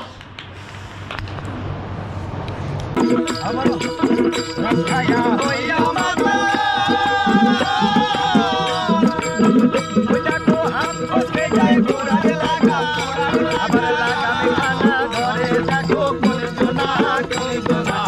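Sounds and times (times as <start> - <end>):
plucked stringed instruments: 2.9 - 12.5
hand drum: 2.9 - 18.0
folk singers singing together: 4.0 - 18.0.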